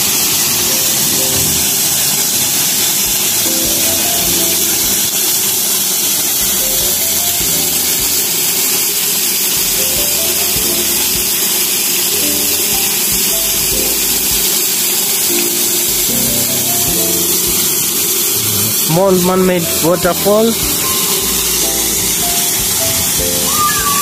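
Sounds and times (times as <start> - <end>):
stepping melody music: 0.0 - 24.0
water pouring down waterfall: 0.0 - 24.0.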